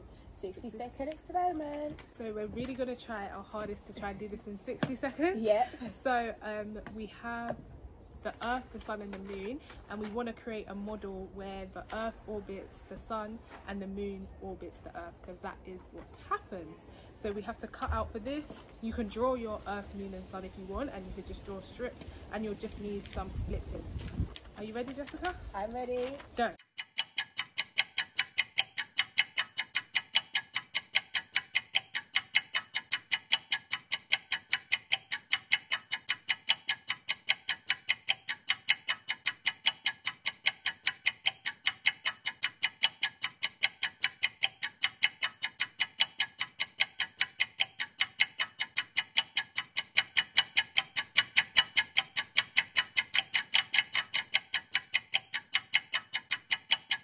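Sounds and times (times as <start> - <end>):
clock ticking fast: 19.0 - 23.4, 26.5 - 57.0.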